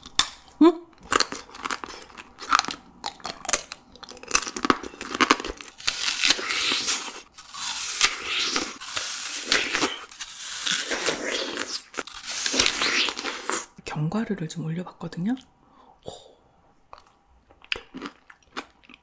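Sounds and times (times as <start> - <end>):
melon tearing and chewing: 0.0 - 13.8.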